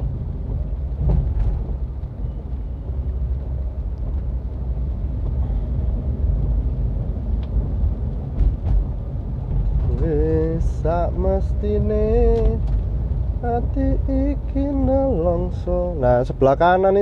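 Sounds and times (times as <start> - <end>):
car engine and tyres on wet road: 0.0 - 17.0.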